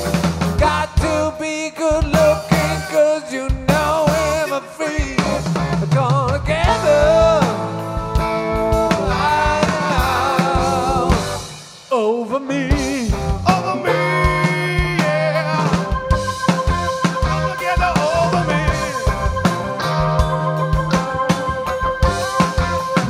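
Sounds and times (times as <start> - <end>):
live rock band playing: 0.0 - 23.0
bending lead line: 12.7 - 23.0.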